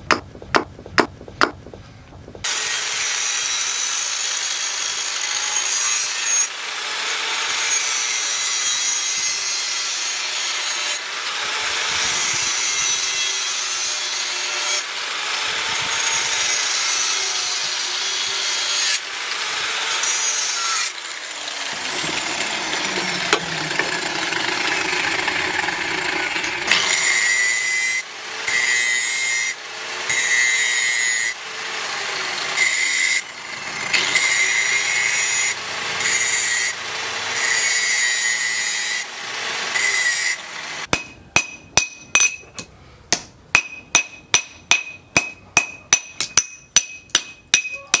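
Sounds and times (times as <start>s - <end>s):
angle grinder cutting metal tubing: 2.4s - 42.6s
sanding disc grinding metal: 7.1s - 40.9s.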